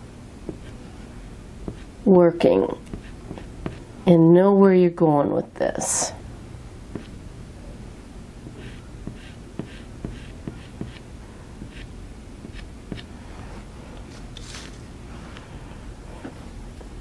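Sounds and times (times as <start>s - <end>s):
low steady hum: 0.0s - 17.0s
pastel stick scratching paper: 8.5s - 11.0s.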